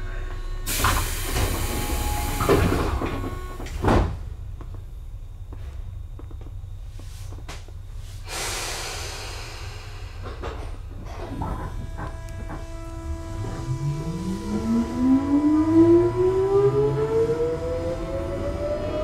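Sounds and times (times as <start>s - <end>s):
air hiss of pneumatic doors: 0.6s - 3.9s, 8.0s - 11.8s
steady low hum: 9.1s - 19.0s.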